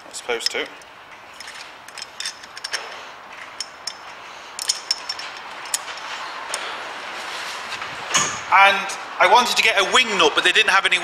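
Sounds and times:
metallic clicks and clinks: 0.4s - 6.6s.

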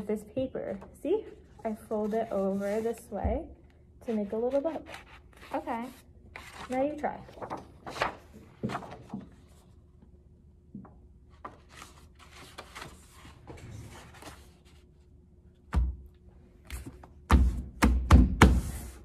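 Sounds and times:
paper rustling: 4.4s - 9.8s, 11.4s - 14.9s.

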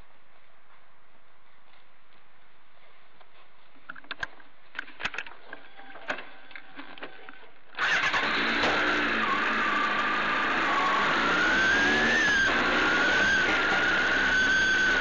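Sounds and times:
motorcycle engine starting and running: 7.8s - 15.0s.

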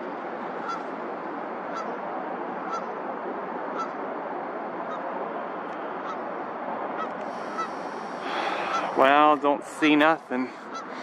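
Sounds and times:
high honking bird calls: 0.6s - 0.9s, 1.7s - 2.0s, 2.6s - 3.0s, 3.7s - 4.0s, 6.0s - 6.3s, 6.9s - 9.0s.

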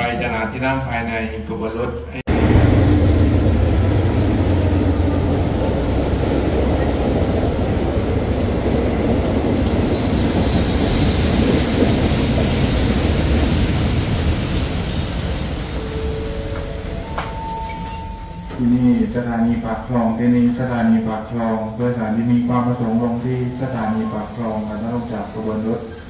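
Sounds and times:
locomotive heavy rumble: 2.3s - 23.6s
train carriages rolling past: 2.3s - 26.0s
wheel and brake squeal: 13.1s - 19.2s, 22.3s - 23.0s.

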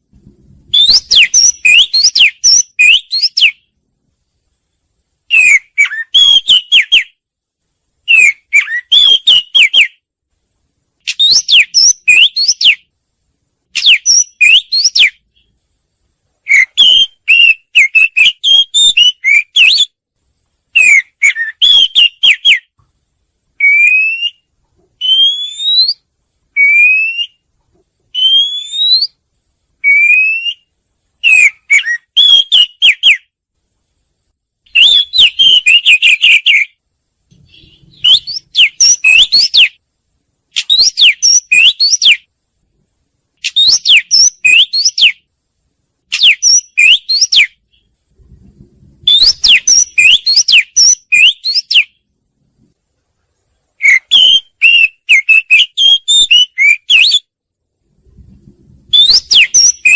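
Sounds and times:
bird singing whistled notes: 0.7s - 3.8s, 5.3s - 7.2s, 8.0s - 10.0s, 11.0s - 12.9s, 13.8s - 15.5s, 16.4s - 20.0s, 20.7s - 22.8s, 23.6s - 27.5s, 28.1s - 29.2s, 29.8s - 33.3s, 34.7s - 36.8s, 37.4s - 39.8s, 40.5s - 42.3s, 43.4s - 45.3s, 46.1s - 47.9s, 49.0s - 52.0s, 53.8s - 57.4s, 58.9s - 59.9s.

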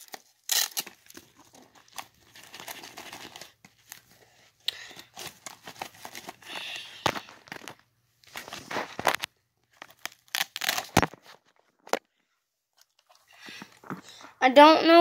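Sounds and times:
pouch opening rasps: 0.0s - 4.1s, 8.3s - 11.4s.

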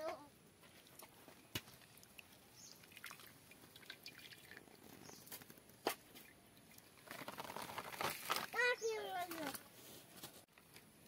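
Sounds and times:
water dripping and splashing: 0.9s - 8.6s.

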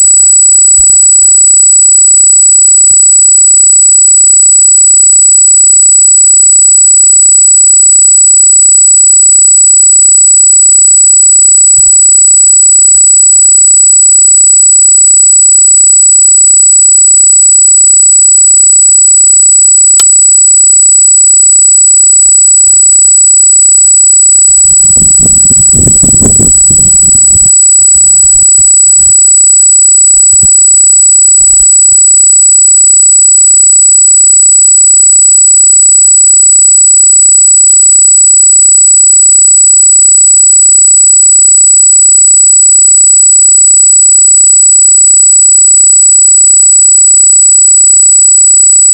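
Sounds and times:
high-pitched electronic squeal: 24.8s - 27.6s.

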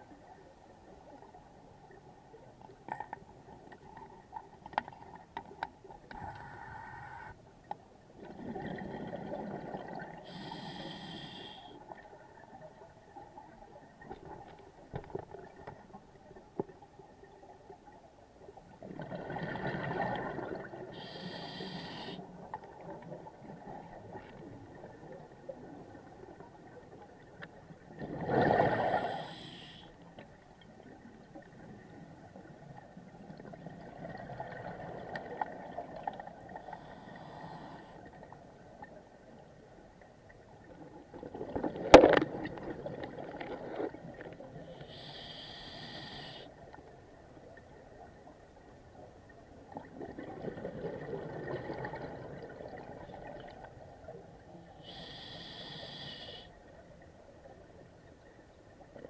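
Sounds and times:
regulator hiss: 10.3s - 11.7s, 21.0s - 22.2s, 44.8s - 46.5s, 54.8s - 56.5s
diver exhaling bubbles underwater: 28.0s - 29.3s, 49.8s - 53.4s.

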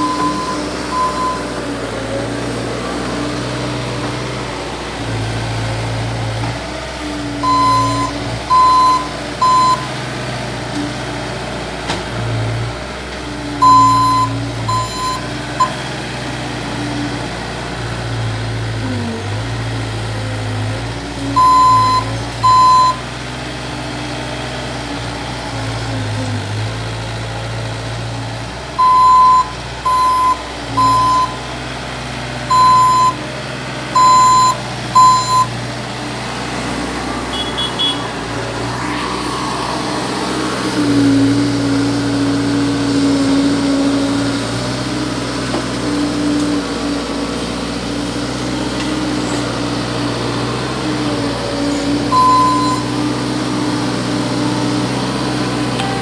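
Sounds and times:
backup alarm beeping: 0.0s - 1.5s, 7.4s - 9.9s, 13.6s - 15.8s, 21.4s - 23.0s, 28.8s - 31.4s, 32.5s - 33.2s, 34.0s - 35.5s, 52.1s - 52.9s, 55.8s - 56.0s
loader engine running: 0.0s - 56.0s.

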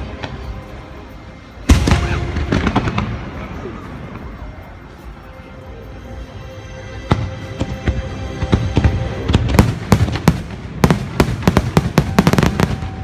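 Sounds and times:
fireworks bursting: 1.6s - 4.5s, 7.0s - 13.0s.

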